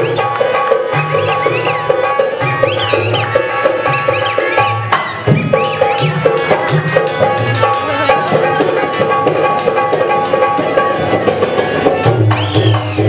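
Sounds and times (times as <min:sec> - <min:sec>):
hand drum beating: 0:00.0 - 0:13.0
harmonium: 0:06.1 - 0:12.5.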